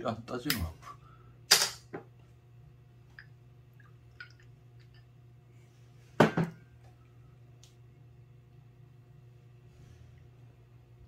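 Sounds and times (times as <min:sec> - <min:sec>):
liquid pouring into a glass: 0:03.7 - 0:05.1.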